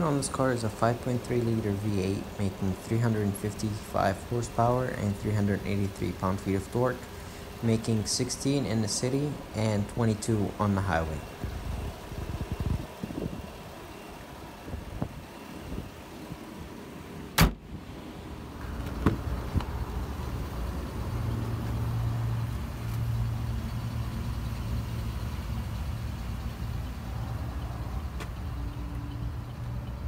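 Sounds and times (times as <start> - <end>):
low vehicle hum: 0.0 - 30.0
car hood slamming shut: 17.3 - 17.7, 18.8 - 19.3.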